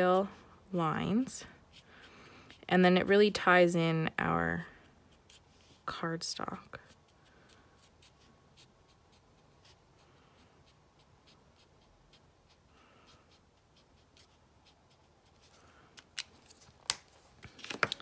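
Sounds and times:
marker scratching on card: 1.6s - 3.2s, 4.7s - 5.8s, 6.8s - 15.6s.

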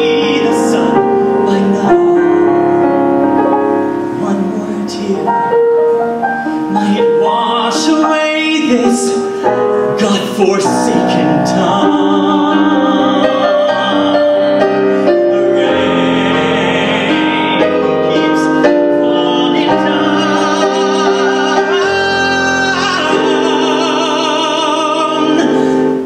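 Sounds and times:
man singing a ballad: 0.0s - 5.8s, 6.5s - 26.0s
piano accompaniment: 0.0s - 26.0s.

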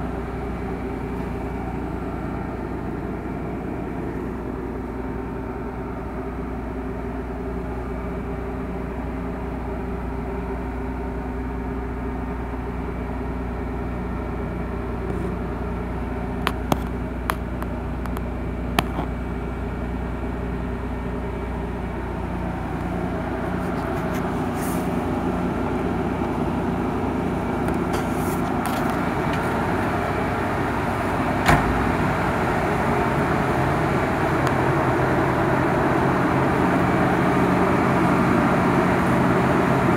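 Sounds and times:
car engine idling: 0.0s - 39.9s
thump: 31.4s - 31.8s.

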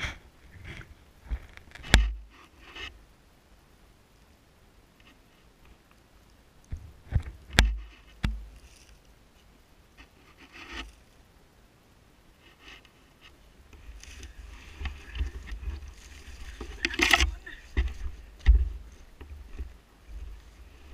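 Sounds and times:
stick knocking among branches: 13.8s - 19.8s.

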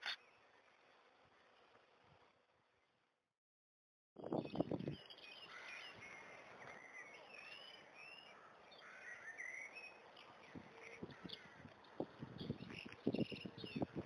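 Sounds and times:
soft outdoor hiss: 0.0s - 3.2s, 4.4s - 14.0s
birds chirping and warbling: 4.2s - 14.0s.

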